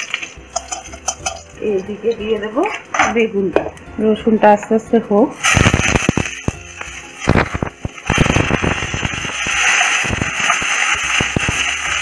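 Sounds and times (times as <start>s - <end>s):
oil sizzling in a pan: 0.0s - 2.5s, 5.3s - 12.0s
oil popping: 5.4s - 12.0s.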